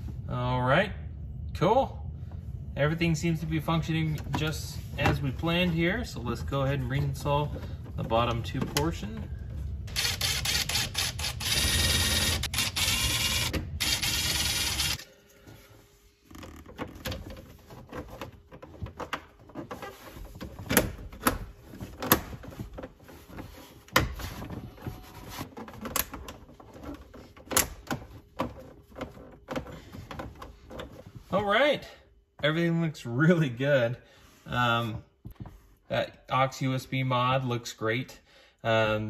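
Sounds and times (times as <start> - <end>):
cordless driver whirring: 9.9 - 15.0.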